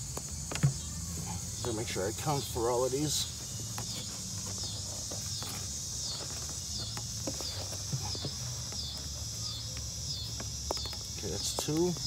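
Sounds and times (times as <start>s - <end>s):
insect chorus: 0.0s - 12.0s
hand moving through soil and sticks: 2.7s - 12.0s.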